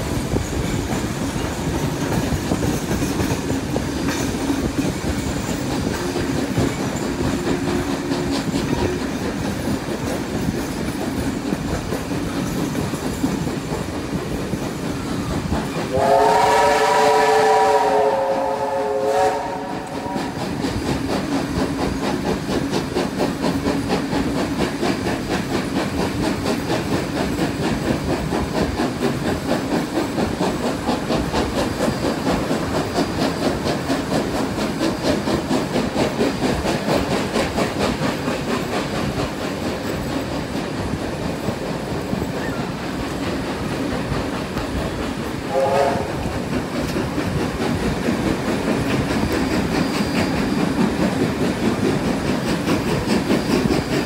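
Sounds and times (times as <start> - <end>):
train wheels clattering on rails: 0.0 - 54.0
steam locomotive chime whistle: 15.8 - 20.6, 45.4 - 46.3.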